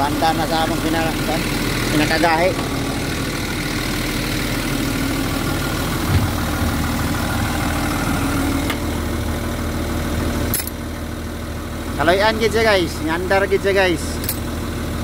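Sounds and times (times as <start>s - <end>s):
diesel engine idling: 0.0s - 15.0s
low thump: 6.0s - 6.8s.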